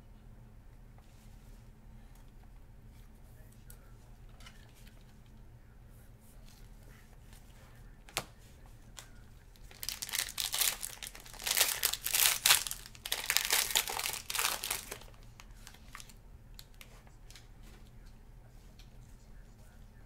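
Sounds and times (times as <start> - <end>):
foil wrapper crinkling: 9.0 - 16.9.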